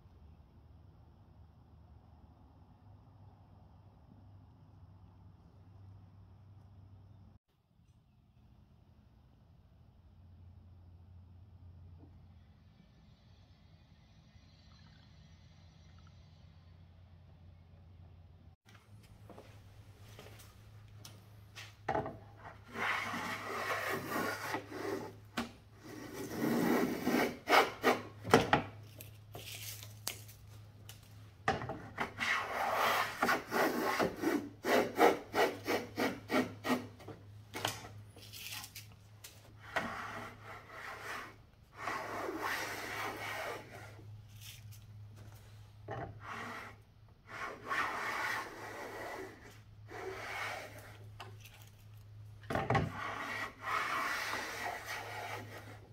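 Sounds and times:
hand plane rasping wood: 22.7 - 28.2, 32.2 - 37.1.

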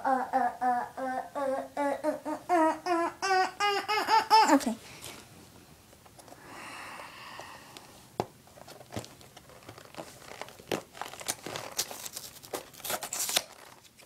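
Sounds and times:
tape and cardboard crinkling: 8.4 - 14.0.

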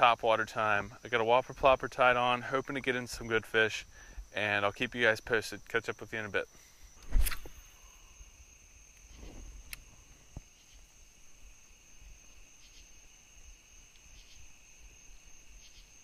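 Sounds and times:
insects droning: 0.0 - 16.0
faint clicks: 13.9 - 14.3.

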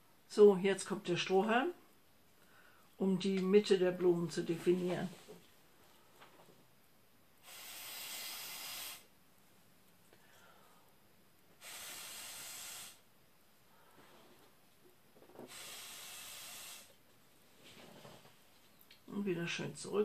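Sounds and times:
air blown through a straw: 7.4 - 9.1, 11.6 - 13.1, 15.4 - 17.0.

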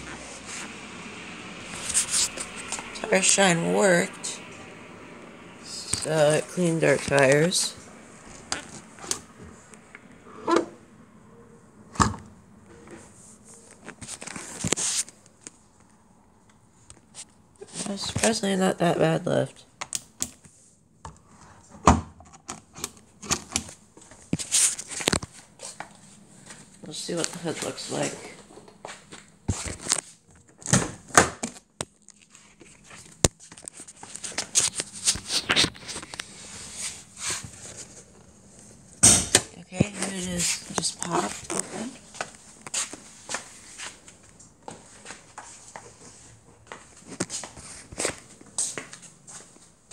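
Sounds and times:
handling and rustling: 23.2 - 38.8.

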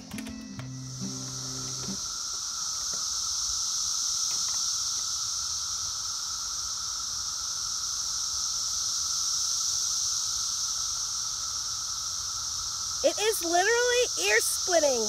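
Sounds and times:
lower steady tone: 0.0 - 2.8
cicadas high-pitched drone: 0.0 - 15.0.

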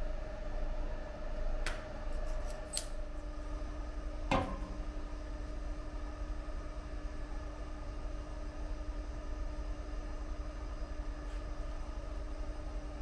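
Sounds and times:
faint steady hum: 0.0 - 13.0
knock on metal scale: 4.3 - 4.7.

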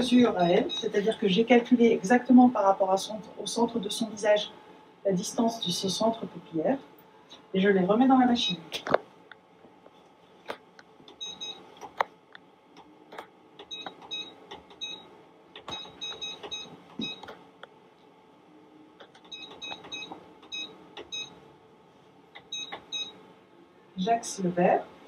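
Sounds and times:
short electronic beeps: 11.2 - 11.6, 15.7 - 17.2, 22.5 - 23.2
stylus clicks and taps: 19.0 - 21.2.

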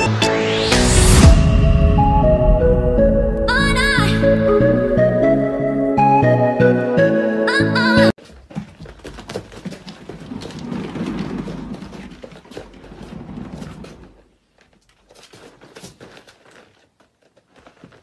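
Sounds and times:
low rumble: 0.0 - 5.9.

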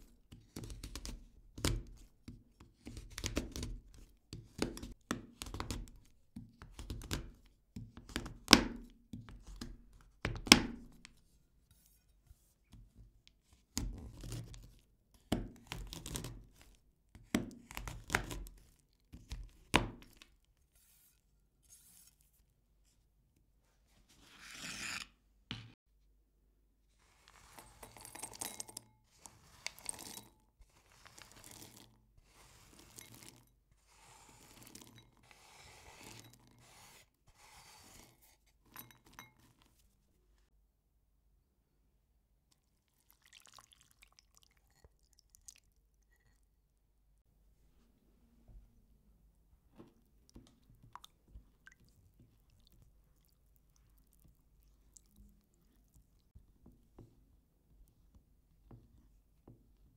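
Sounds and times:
chocolate pieces scraping and rattling: 27.1 - 33.4
pieces dropping into glass bowl: 27.6 - 28.9.

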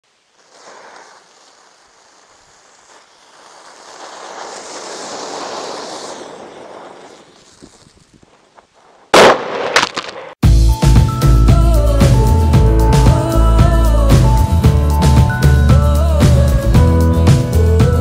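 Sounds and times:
smoke bomb hissing: 0.0 - 9.8.

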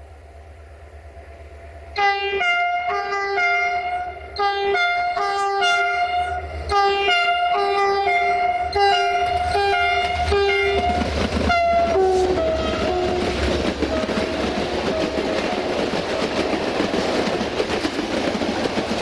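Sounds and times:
train rumble and wheel clatter: 0.0 - 19.0
locomotive horn blasts: 2.0 - 15.4.

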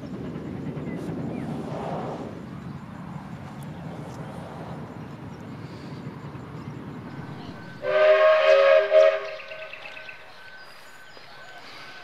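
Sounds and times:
train rumbling: 0.0 - 12.0
train whistle blast: 7.8 - 10.2.

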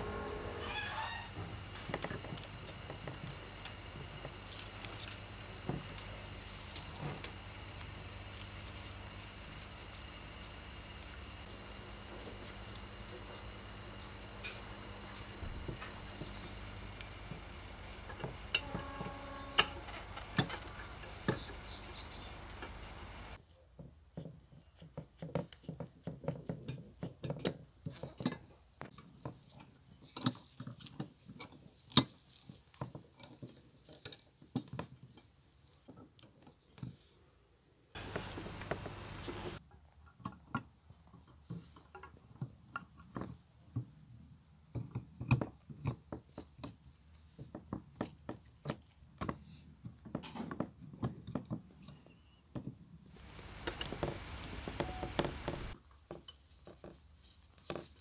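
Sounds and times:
steady hum: 0.0 - 23.4, 38.0 - 39.6, 53.2 - 55.8
small metal parts clinking: 33.2 - 34.8.

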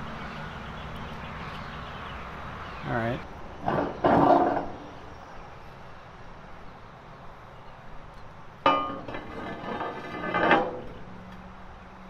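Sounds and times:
faint outdoor background: 0.0 - 12.0
metal clank with ringing tone: 8.6 - 11.1.

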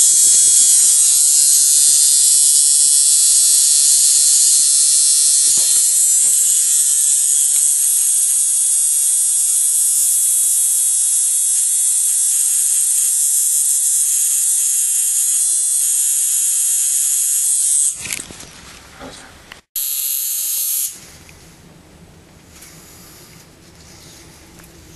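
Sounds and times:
tattoo machine buzzing: 0.0 - 18.0, 19.8 - 21.0.

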